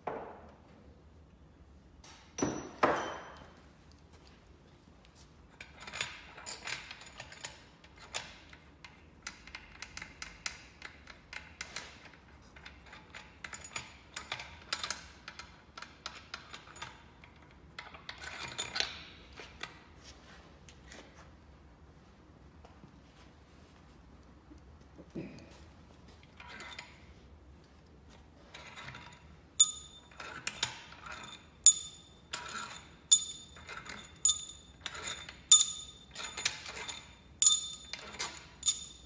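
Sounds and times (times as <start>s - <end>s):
metal parts clicking and rattling: 5.5s - 19.8s, 28.4s - 39.0s.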